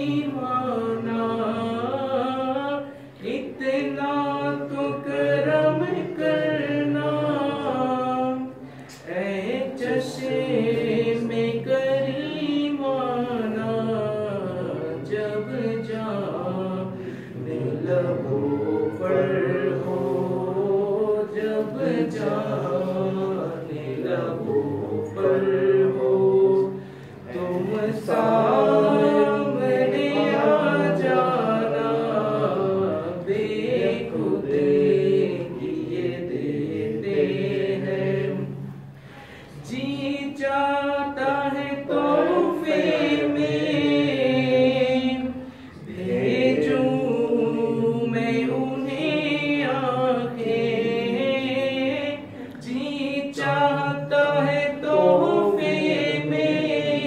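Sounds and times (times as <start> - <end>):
man singing unaccompanied: 0.0 - 17.0, 39.6 - 45.4, 46.3 - 57.0.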